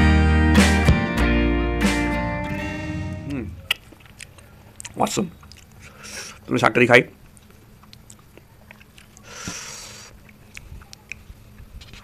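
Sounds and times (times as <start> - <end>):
chewing and wet mouth clicks: 3.6 - 6.0, 7.2 - 12.0.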